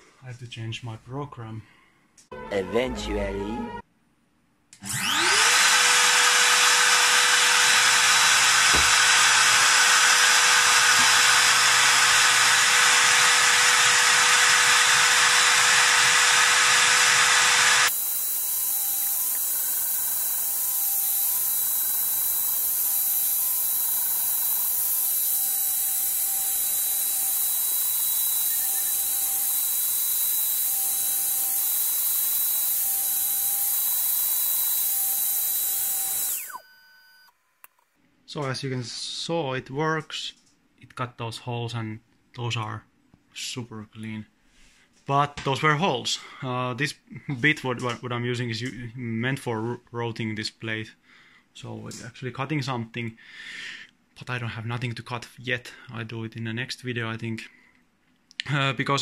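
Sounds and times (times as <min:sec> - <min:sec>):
router high-pitched whine: 0:04.8 - 0:37.8
stepper motors whining: 0:04.8 - 0:37.8.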